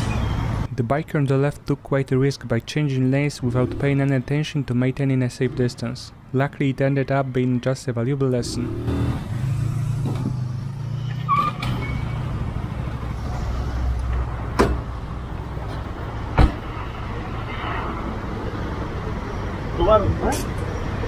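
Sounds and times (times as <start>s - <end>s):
sharp knocks: 14.6s - 14.9s.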